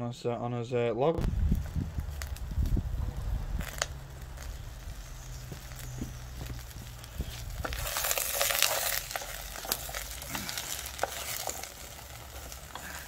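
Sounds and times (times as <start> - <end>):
vegetables sizzling in oil: 1.4 - 13.0
wooden spoon stirring: 4.4 - 13.0.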